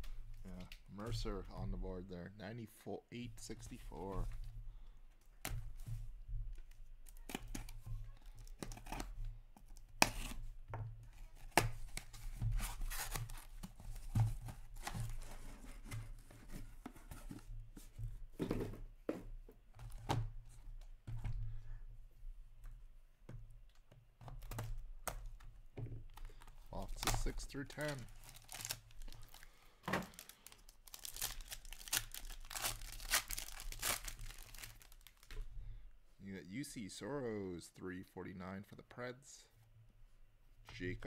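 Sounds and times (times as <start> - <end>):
cardboard tearing: 30.9 - 35.0.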